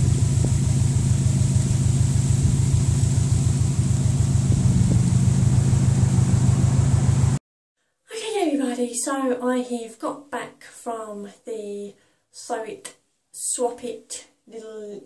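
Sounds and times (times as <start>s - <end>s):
car driving rumble: 0.0s - 7.4s.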